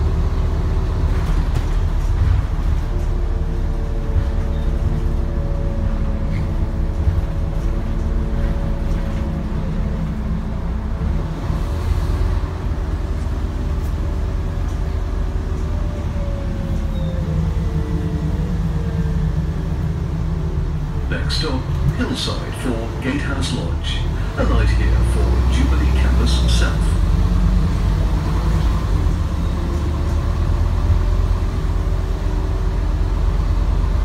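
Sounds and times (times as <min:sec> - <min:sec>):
bus diesel engine rumble: 0:00.0 - 0:34.0.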